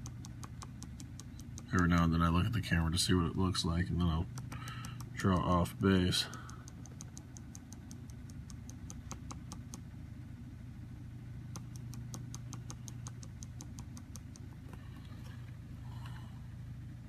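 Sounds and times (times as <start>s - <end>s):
steady low hum: 0.0s - 17.0s
marker tip tapping paper: 4.3s - 5.2s.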